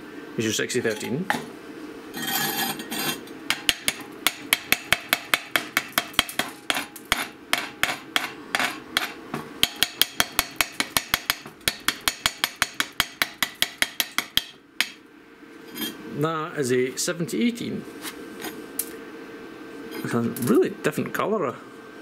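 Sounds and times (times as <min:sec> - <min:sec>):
chipping hammer tapping metal: 0:03.5 - 0:15.0.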